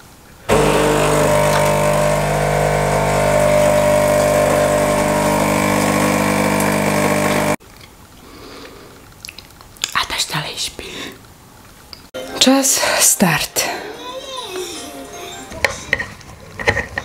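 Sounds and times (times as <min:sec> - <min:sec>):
coffee machine humming: 0:00.5 - 0:07.6.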